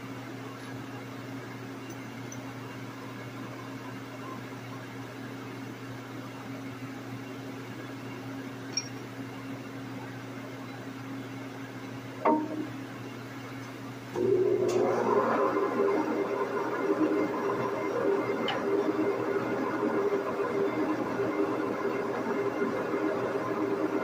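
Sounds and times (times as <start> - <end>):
low machine hum: 0.0 - 24.0
metallic clink with ring: 8.7 - 9.0.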